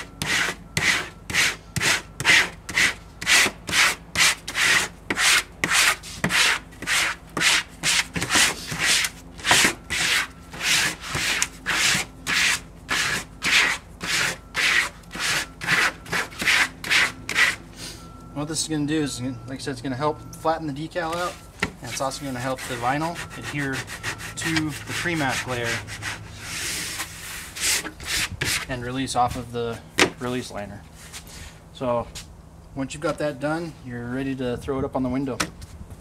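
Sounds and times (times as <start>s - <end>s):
squeegee scraping vinyl: 0.0s - 17.6s, 21.2s - 29.4s.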